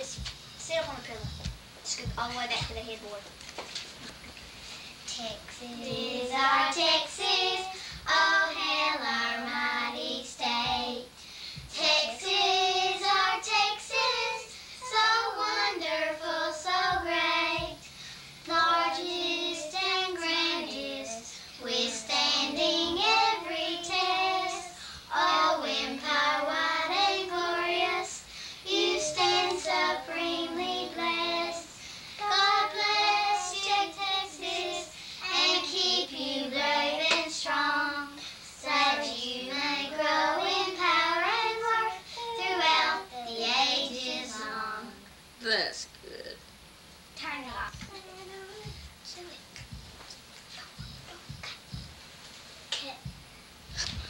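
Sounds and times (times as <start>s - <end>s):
girls singing unaccompanied: 5.1s - 45.1s.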